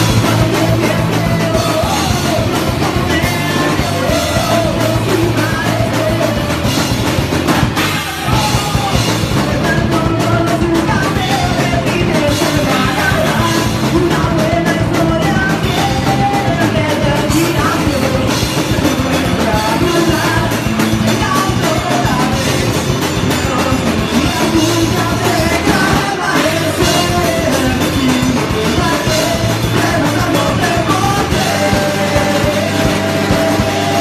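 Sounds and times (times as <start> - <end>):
person singing: 0.0 - 34.0
punk band playing live: 0.0 - 34.0.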